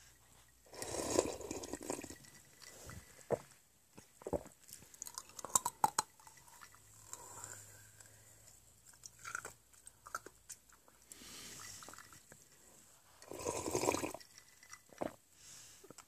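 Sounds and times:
drinking from bottle: 0.7 - 3.4, 13.2 - 15.2.

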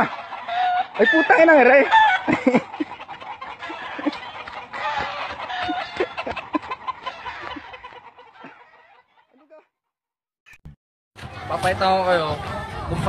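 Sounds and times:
chickens clucking: 0.0 - 9.7.

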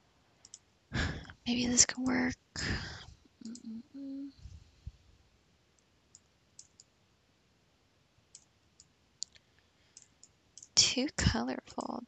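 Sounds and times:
computer mouse clicks: 0.4 - 0.6, 5.8 - 6.9, 8.3 - 10.8
woman humming: 1.0 - 4.6.

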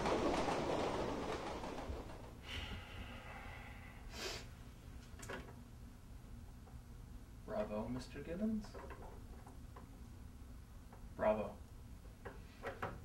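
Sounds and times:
train rumbling past: 0.0 - 3.9.

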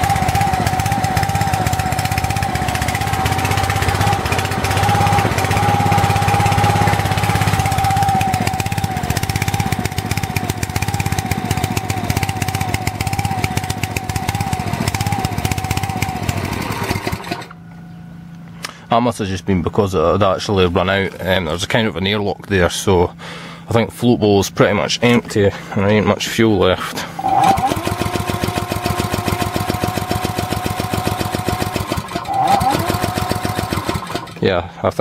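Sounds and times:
small engine running rough: 0.0 - 18.9, 26.8 - 34.8
steady whine: 0.0 - 23.2.

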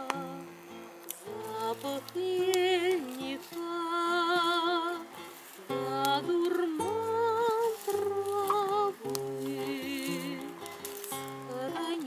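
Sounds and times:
woman singing: 0.0 - 0.6, 1.3 - 12.0
guitar accompaniment: 0.0 - 12.0.

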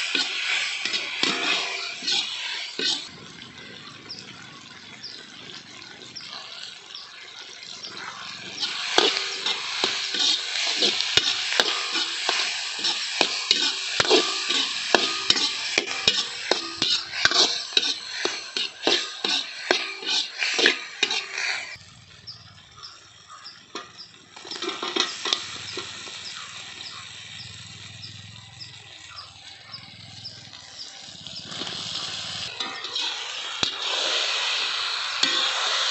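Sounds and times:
metal spatula scraping wok: 0.0 - 3.2, 7.6 - 21.8, 23.7 - 28.2, 30.1 - 35.9
onions sizzling in oil: 0.0 - 21.8, 22.7 - 35.9.

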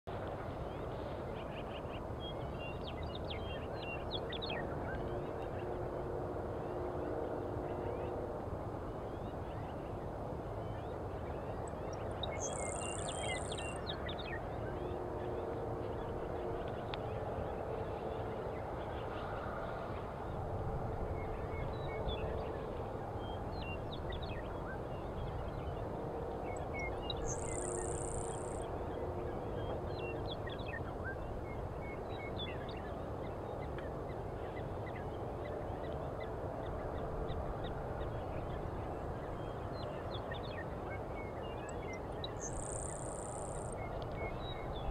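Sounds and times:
low background noise: 0.1 - 44.9
high thin buzzing bird song: 10.7 - 17.6, 26.5 - 35.0, 38.0 - 44.9.

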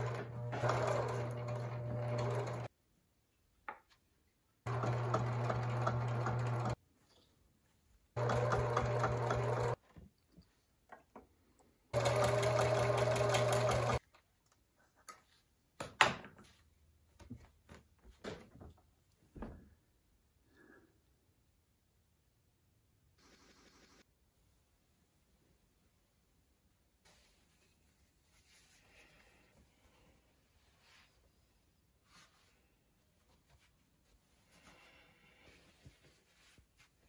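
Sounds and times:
sewing machine stitching: 0.0 - 2.7, 4.7 - 6.8, 8.2 - 9.8, 11.9 - 14.0.

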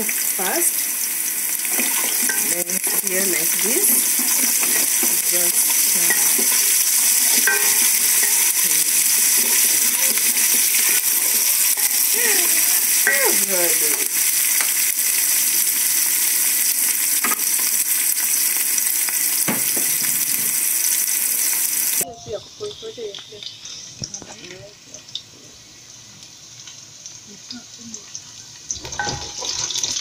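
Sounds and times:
onions sizzling in oil: 0.0 - 30.0
wooden spoon knocking against pot: 7.2 - 8.6.

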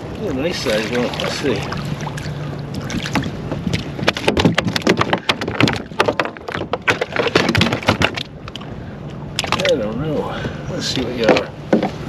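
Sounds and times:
fish thrashing against kayak: 0.3 - 8.7.

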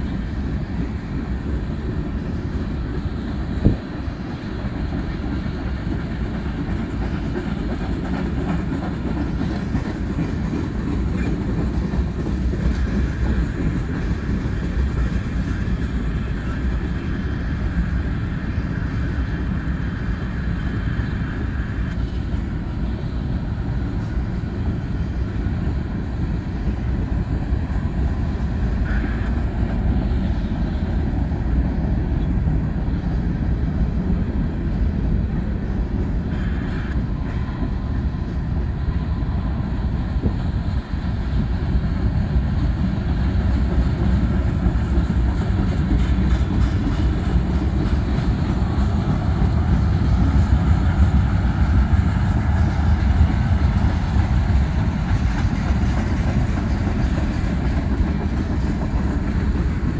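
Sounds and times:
freight train wheels rumbling on rail: 0.0 - 59.9
wheels clacking over rail joints: 4.6 - 17.3, 42.4 - 59.9.

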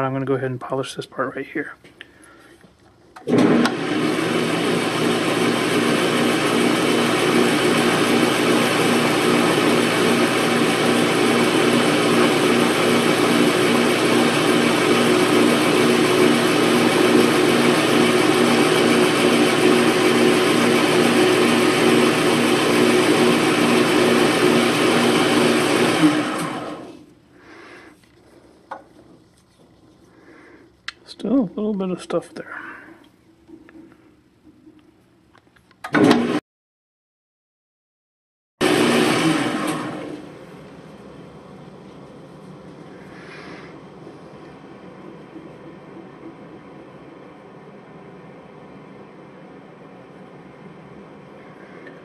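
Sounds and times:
metal lathe running: 3.3 - 27.0.

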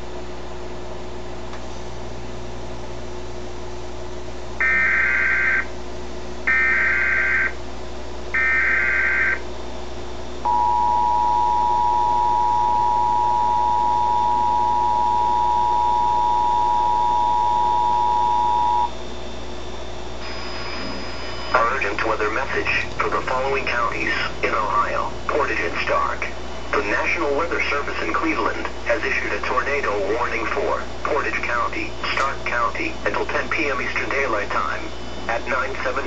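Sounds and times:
two-tone attention signal: 10.5 - 19.0
warbling electronic data chirps: 10.5 - 19.0, 20.2 - 28.1.

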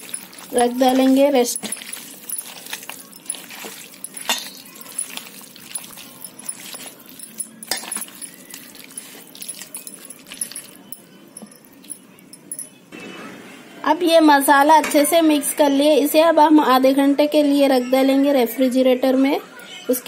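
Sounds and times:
hands squishing meat in marinade: 0.0 - 11.0.

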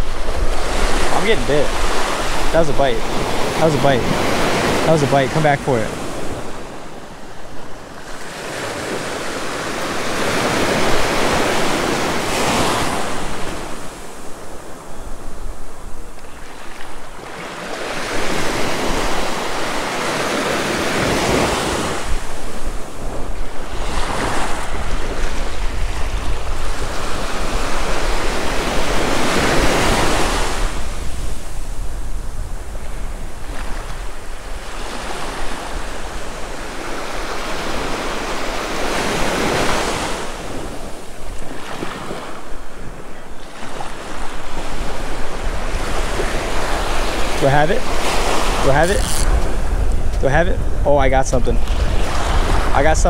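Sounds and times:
wind rumble on microphone: 0.0 - 4.9, 18.0 - 53.0
small ocean waves breaking: 0.0 - 50.8, 51.4 - 53.0.

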